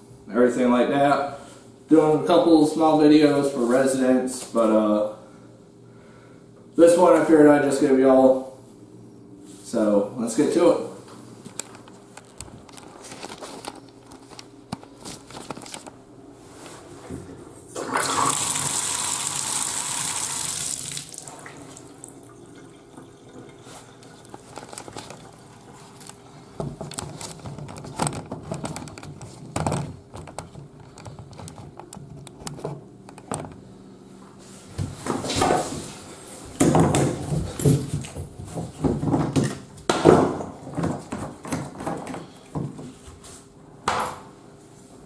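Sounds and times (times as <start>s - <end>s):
liquid rushing into bathtub: 17.8s - 24.5s.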